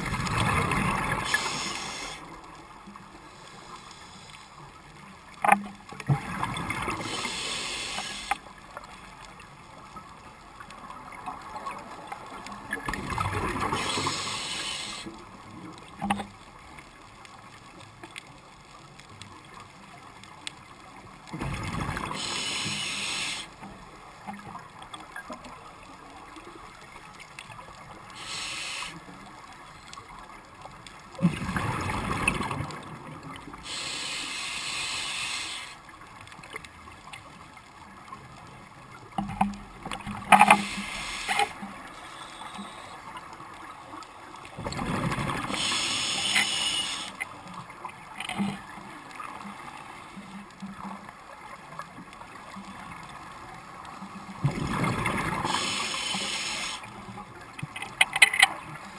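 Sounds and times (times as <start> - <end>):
low hiss: 0.0 - 44.5, 45.2 - 48.1, 55.2 - 57.8
regulator bubbling underwater: 54.3 - 55.8.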